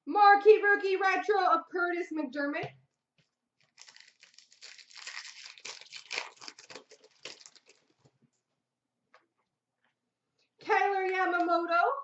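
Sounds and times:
foil wrapper crinkling: 0:03.6 - 0:08.1.

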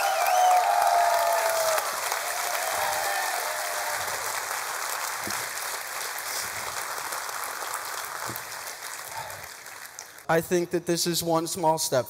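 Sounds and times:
people whooping: 0:00.0 - 0:04.4
audience applauding: 0:00.0 - 0:10.3.

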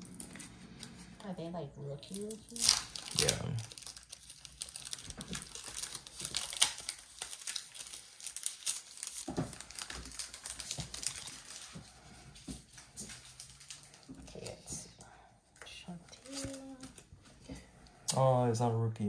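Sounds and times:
plastic wrappers crinkling: 0:00.0 - 0:01.2, 0:02.0 - 0:15.0, 0:15.6 - 0:17.7
cards being handled: 0:16.2 - 0:17.5.

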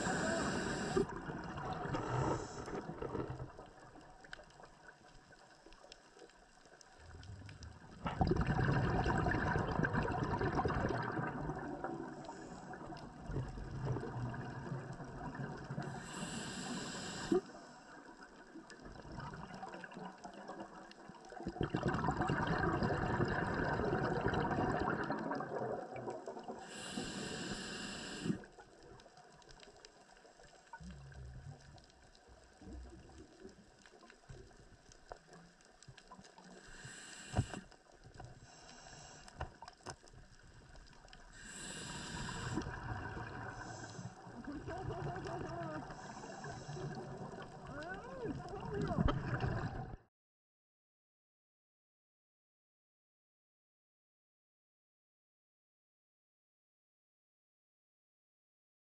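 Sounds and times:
high hiss: 0:00.0 - 0:01.0, 0:26.7 - 0:28.4
underwater rushing water: 0:00.0 - 0:50.0.

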